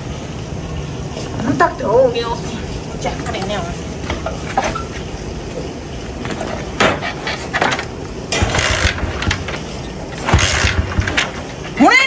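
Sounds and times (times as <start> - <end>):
tools knocking and clattering: 6.2 - 11.8.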